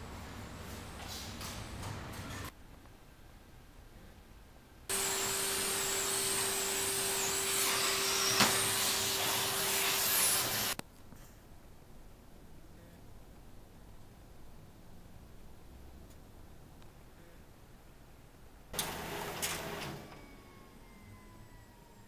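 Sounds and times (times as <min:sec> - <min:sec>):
vacuum cleaner running: 0:04.9 - 0:10.8, 0:18.8 - 0:22.0.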